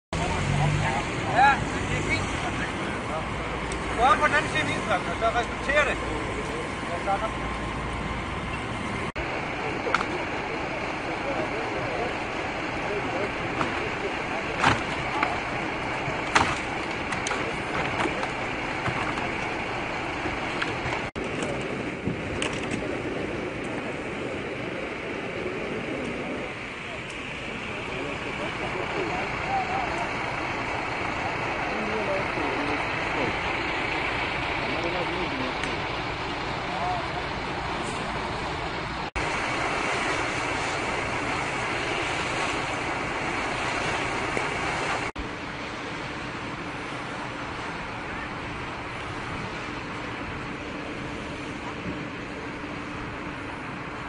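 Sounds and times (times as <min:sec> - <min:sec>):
outdoor street noise: 0:00.1 - 0:54.0
hiss of water spray and steam: 0:39.2 - 0:45.1.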